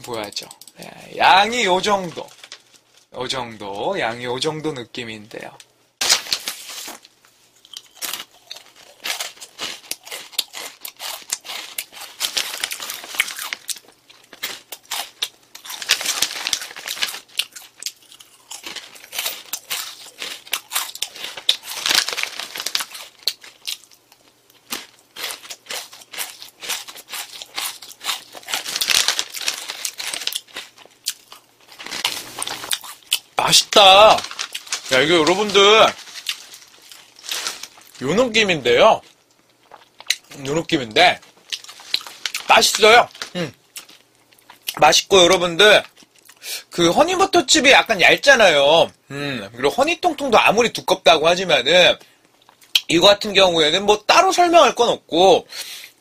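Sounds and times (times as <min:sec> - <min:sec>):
snack pouch crinkling: 0:06.0 - 0:40.6, 0:41.2 - 0:44.8
crunching potato sticks: 0:06.0 - 0:46.4.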